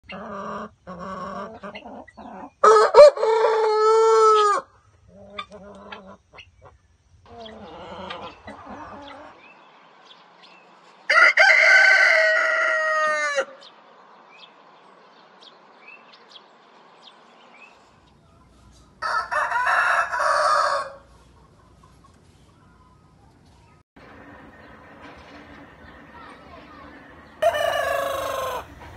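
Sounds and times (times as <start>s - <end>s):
chickens clucking: 0.0s - 13.8s, 15.4s - 28.9s
roosters crowing: 0.1s - 6.2s, 7.3s - 9.5s, 11.1s - 13.8s, 18.9s - 21.3s, 24.0s - 28.9s.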